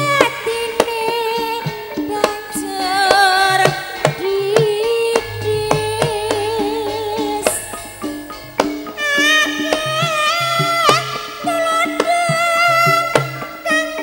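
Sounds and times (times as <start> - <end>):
deep gong tone: 5.2 - 9.3
sharp drum strokes: 5.2 - 9.4.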